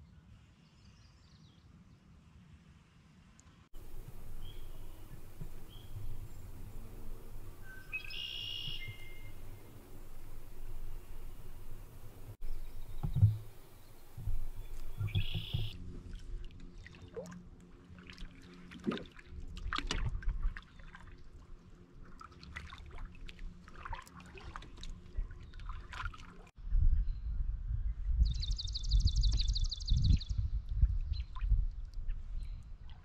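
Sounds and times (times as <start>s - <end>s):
buzzy bird call: 3.8s - 15.8s
high bird trill: 3.8s - 15.8s
low rumble: 3.8s - 16.0s
paddle splashing water: 3.8s - 26.5s
knocks on canoe hull: 12.9s - 13.6s.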